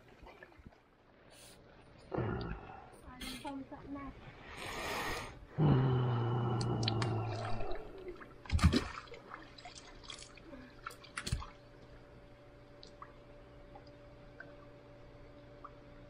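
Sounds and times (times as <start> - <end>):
water splashing and dripping: 6.6 - 11.9.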